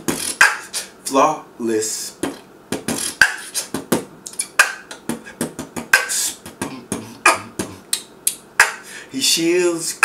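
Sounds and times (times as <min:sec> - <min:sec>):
beatboxing: 0:00.0 - 0:01.0, 0:02.1 - 0:08.9.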